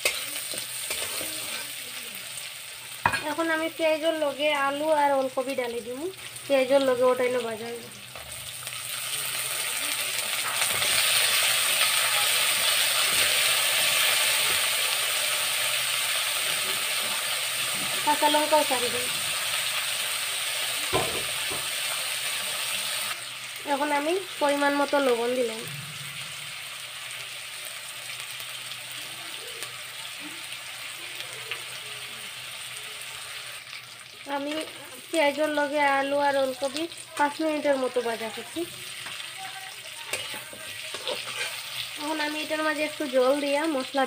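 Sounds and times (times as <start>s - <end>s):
oil sizzling in a wok: 0.0s - 44.0s.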